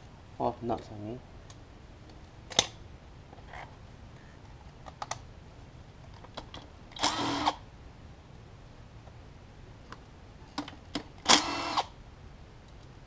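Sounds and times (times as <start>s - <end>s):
cordless drill whirring: 7.0s - 7.6s, 11.3s - 11.9s.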